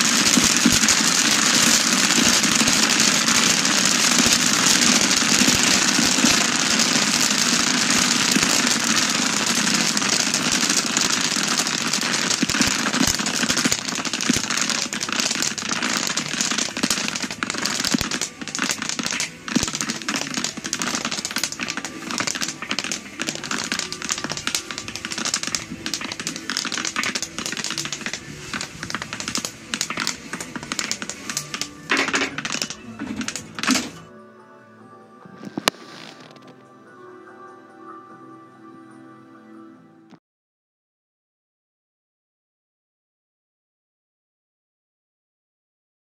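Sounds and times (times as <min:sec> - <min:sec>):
popcorn popping: 0:00.0 - 0:34.1, 0:35.4 - 0:36.5.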